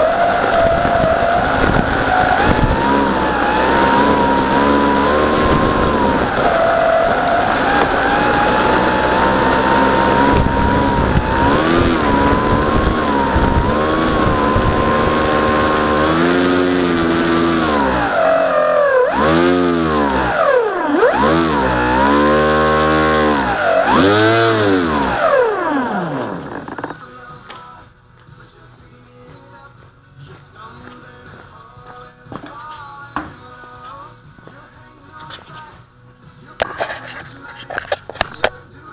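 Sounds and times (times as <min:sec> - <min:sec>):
model plane motor whining: 0:00.0 - 0:27.0.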